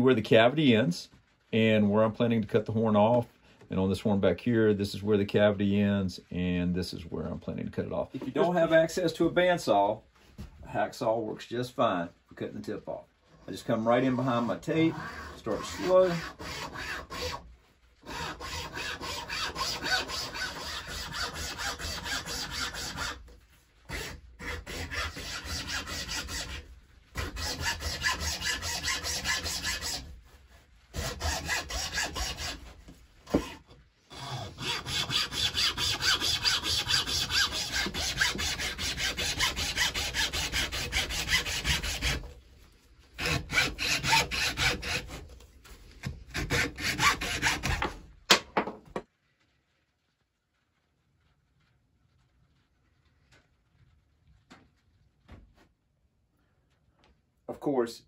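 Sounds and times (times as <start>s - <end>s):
hacksaw cutting horn: 14.2s - 17.4s, 18.0s - 23.2s, 23.9s - 26.6s, 27.2s - 30.1s, 30.9s - 32.6s, 33.3s - 42.2s, 43.2s - 45.2s, 46.3s - 47.8s.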